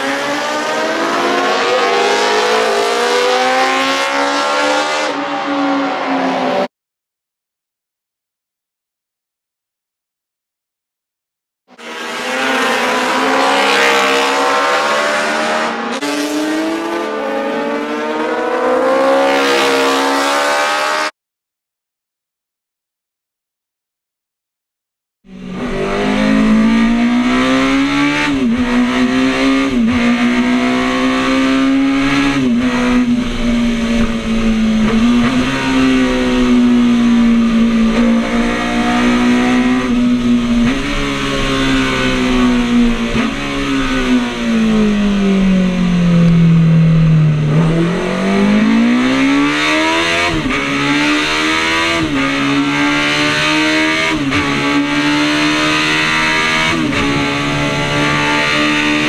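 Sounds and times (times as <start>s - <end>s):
motorcycle engine at high revs: 11.8s - 21.1s, 25.4s - 59.0s.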